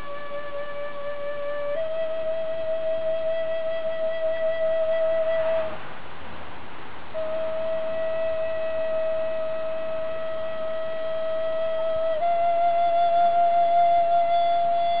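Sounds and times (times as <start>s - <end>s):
wooden flute steady note: 0.0s - 15.0s
breathy rush of air: 5.2s - 7.4s.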